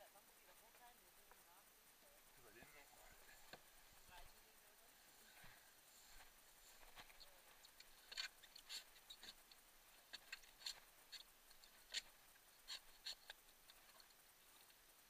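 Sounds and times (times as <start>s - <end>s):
hand pump clicks and squirts: 7.1s - 14.8s.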